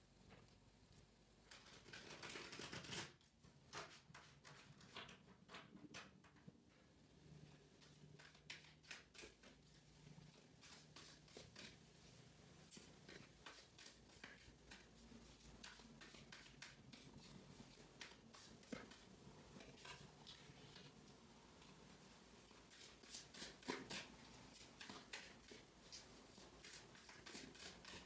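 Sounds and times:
cards being shuffled: 0:01.5 - 0:03.2, 0:07.9 - 0:11.8, 0:12.7 - 0:19.0.

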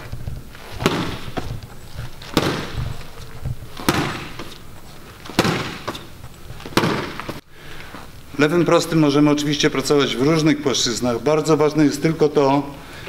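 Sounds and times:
punches smacking: 0:00.8 - 0:01.6, 0:02.2 - 0:04.6, 0:05.2 - 0:07.4.

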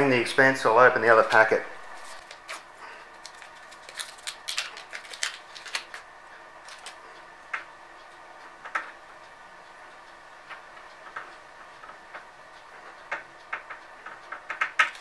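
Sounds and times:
clicks and crinkles of handling: 0:01.3 - 0:07.0.

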